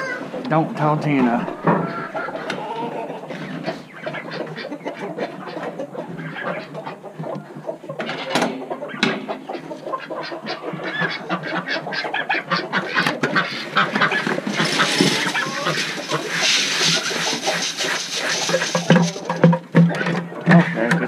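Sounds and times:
chickens clucking: 0:00.0 - 0:21.0
ducks quacking: 0:00.0 - 0:21.0
hissing rustling noise: 0:13.5 - 0:19.6.

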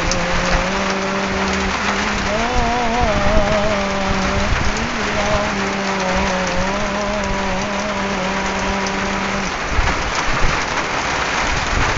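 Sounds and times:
man chanting call to prayer: 0:00.0 - 0:09.5
heavy rain pouring: 0:00.0 - 0:11.9.

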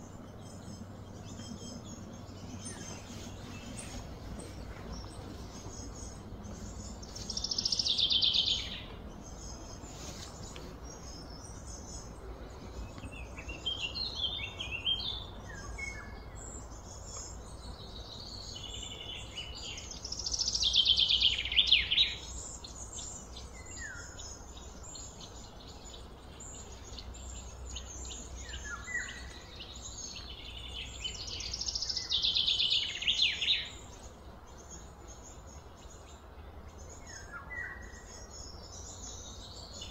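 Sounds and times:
steady low rumble: 0:00.0 - 0:20.5.

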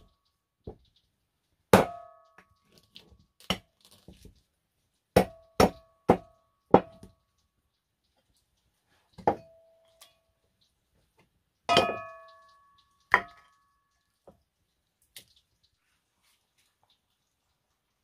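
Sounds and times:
cleaver chopping on wooden block: 0:05.2 - 0:07.0.

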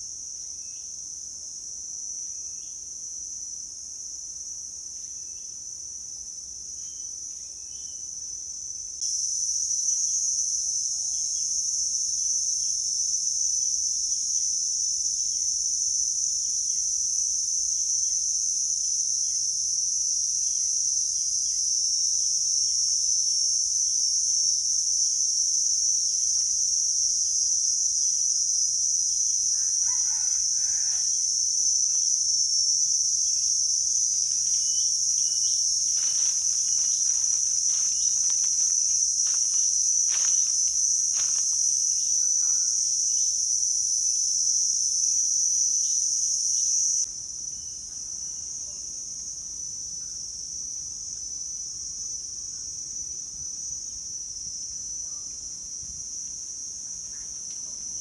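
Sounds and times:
insects chirring: 0:00.0 - 0:58.0
rooster crowing: 0:29.3 - 0:42.8.

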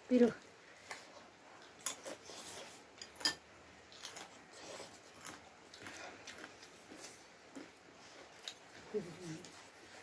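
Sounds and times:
cutlery clinking on porcelain bowls: 0:03.0 - 0:03.4.

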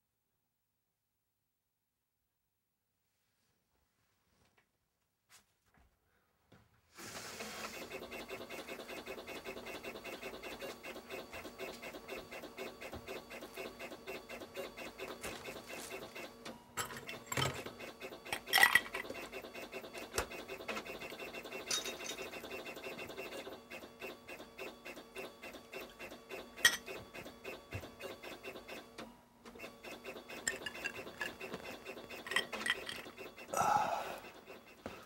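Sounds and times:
rapid mechanical ticking: 0:07.7 - 0:16.3, 0:17.6 - 0:28.8, 0:29.6 - 0:33.6.

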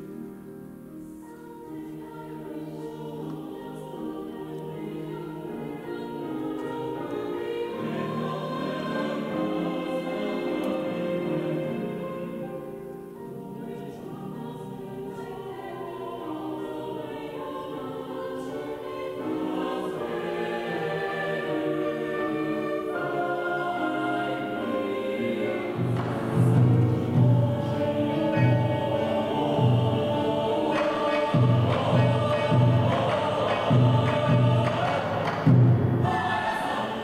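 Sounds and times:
choir singing: 0:00.0 - 0:37.0
piano: 0:00.0 - 0:37.0
deep taiko drum beats: 0:31.3 - 0:36.1.

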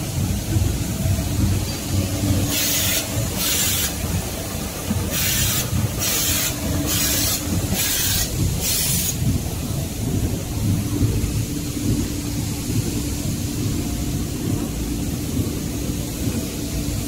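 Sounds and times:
machine rumble and hum: 0:00.0 - 0:17.0
short air hisses: 0:05.2 - 0:09.2.

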